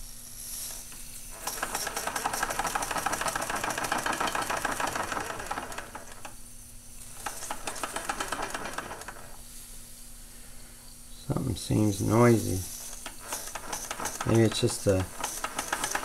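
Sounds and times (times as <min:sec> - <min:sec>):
steam hiss: 0:00.0 - 0:16.0
toy steam engine clattering: 0:01.3 - 0:06.4, 0:07.1 - 0:09.4, 0:12.4 - 0:16.0.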